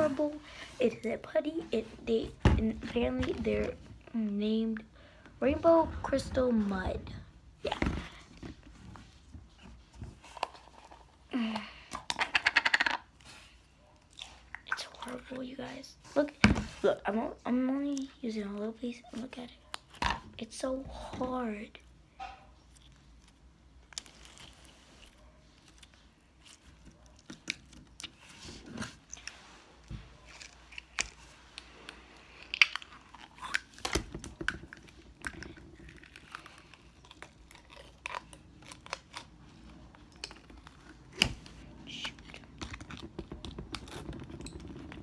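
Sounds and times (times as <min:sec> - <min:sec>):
crunchy slime crackling: 0:30.2 - 0:45.0.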